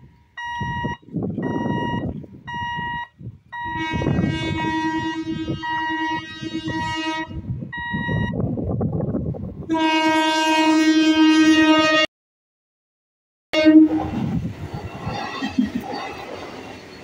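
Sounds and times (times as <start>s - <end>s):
rumble of approaching train: 0.0s - 10.8s, 13.6s - 17.0s
train horn blasts: 3.6s - 7.6s, 9.7s - 12.1s, 13.6s - 14.3s.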